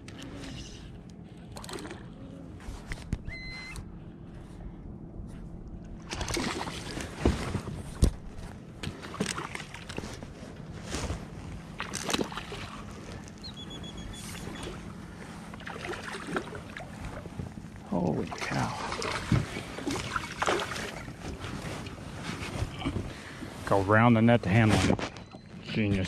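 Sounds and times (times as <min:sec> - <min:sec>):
water splashing: 0:06.0 - 0:07.4, 0:15.5 - 0:17.3, 0:18.0 - 0:22.0.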